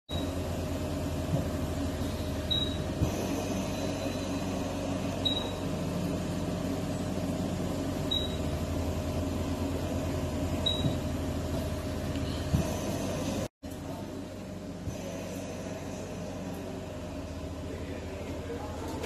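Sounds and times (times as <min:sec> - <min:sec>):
machinery humming: 0:00.1 - 0:19.0
short high beeps: 0:05.2 - 0:05.6, 0:08.1 - 0:08.4.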